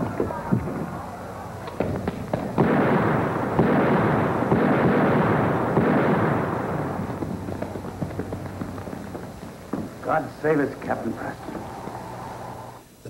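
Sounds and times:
dense crackling volley of shots: 0.0 - 12.8
musket shots cracking: 1.6 - 12.4.

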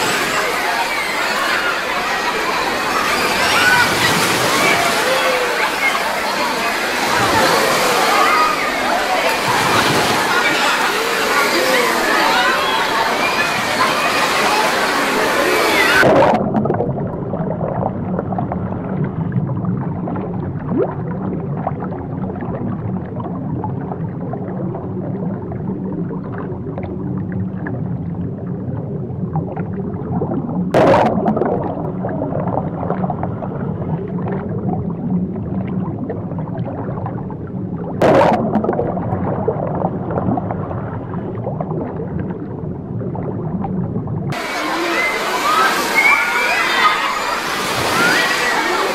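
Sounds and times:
underwater bubbling turbulence: 0.0 - 48.9
water splashing at surface: 2.8 - 24.5, 35.5 - 48.9.

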